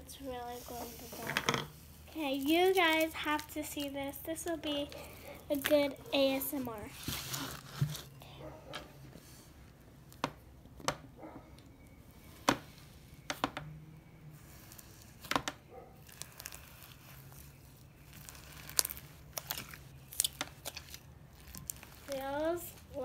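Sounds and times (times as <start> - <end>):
sticky slime popping: 14.6 - 23.0.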